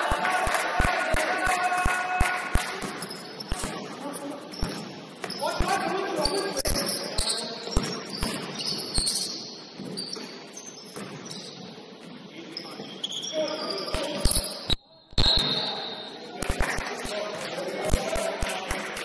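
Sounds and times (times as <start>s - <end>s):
voices in hall: 0.0s - 19.0s
basketball bouncing on gym floor: 2.2s - 5.8s, 6.7s - 10.2s.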